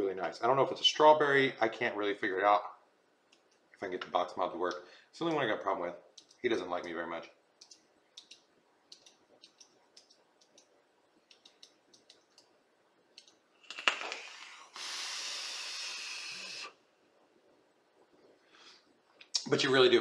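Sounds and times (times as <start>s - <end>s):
vape hissing: 14.4s - 16.8s.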